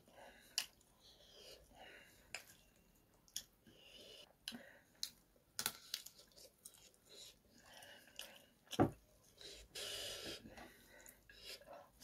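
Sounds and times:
sticky clicks of fingers mixing rice: 0:02.2 - 0:03.7
chewing and crunching: 0:05.0 - 0:09.4.

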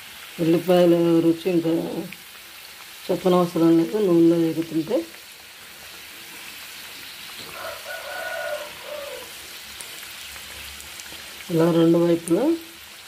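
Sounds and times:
food deep-frying in oil: 0:00.0 - 0:13.0
drawn-out pitched call: 0:07.2 - 0:09.6.

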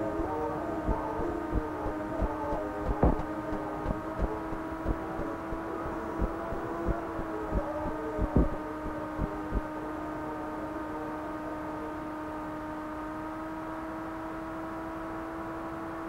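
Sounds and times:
electronic drone: 0:00.0 - 0:12.6
low thumps and crackles: 0:00.9 - 0:05.6, 0:06.2 - 0:09.6.

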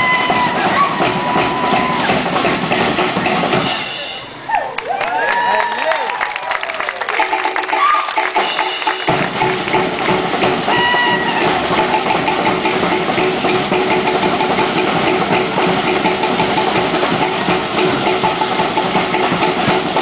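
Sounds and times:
deep bass drum: 0:00.0 - 0:03.7, 0:08.3 - 0:20.0
fast drumming: 0:00.0 - 0:04.2, 0:06.6 - 0:20.0.

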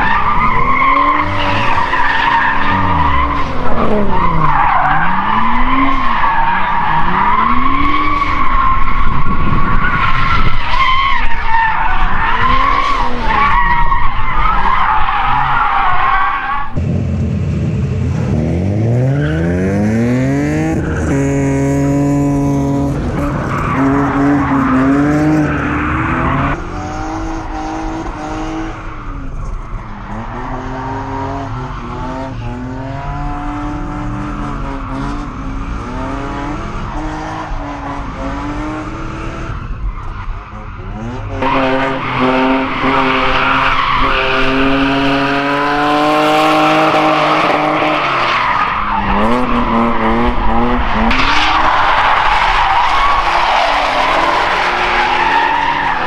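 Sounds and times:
car engine revving: 0:16.8 - 0:56.0.

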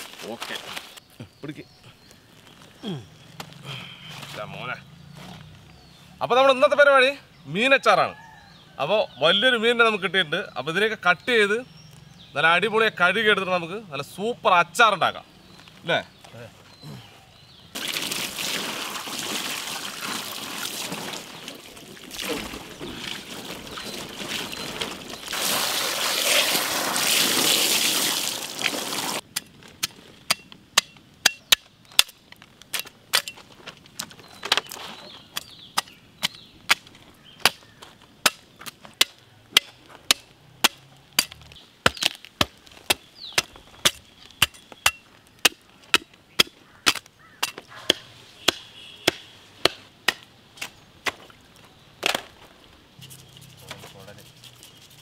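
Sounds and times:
water pouring and splashing: 0:17.8 - 0:29.2
cleaver chopping fish: 0:35.4 - 0:51.4.

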